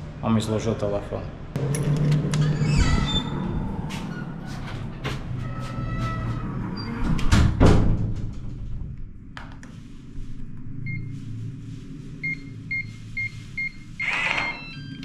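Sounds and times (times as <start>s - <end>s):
steady low hum: 6.4s - 15.0s.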